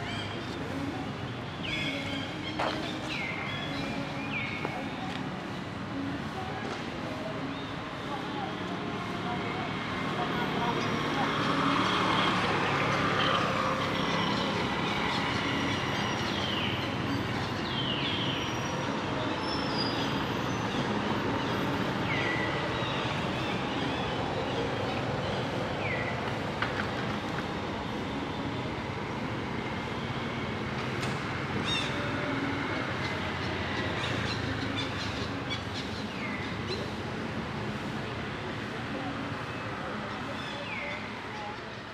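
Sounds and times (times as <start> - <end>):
outdoor background noise: 0.0 - 41.9.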